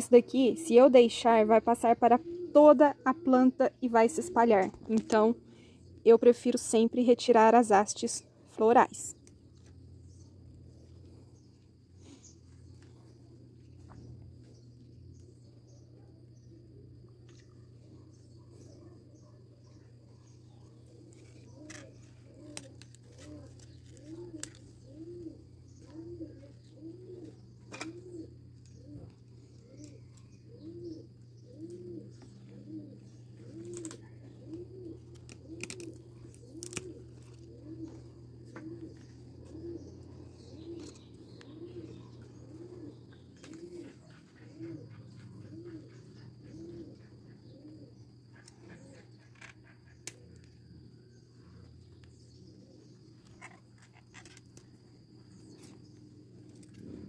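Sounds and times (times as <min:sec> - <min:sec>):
dove cooing: 0:00.0 - 0:06.3, 0:10.0 - 0:57.0
steady low hum: 0:00.0 - 0:57.0
leaves clicking: 0:20.4 - 0:30.6, 0:31.6 - 0:39.6.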